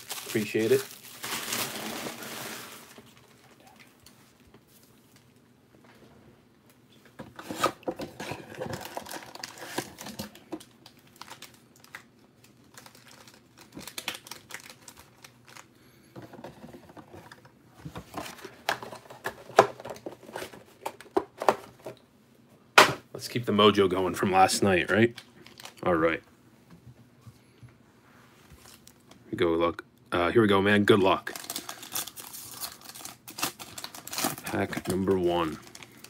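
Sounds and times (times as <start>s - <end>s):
foil card packs crinkling: 0.0s - 3.7s, 8.2s - 15.7s, 24.8s - 26.0s, 31.2s - 36.0s.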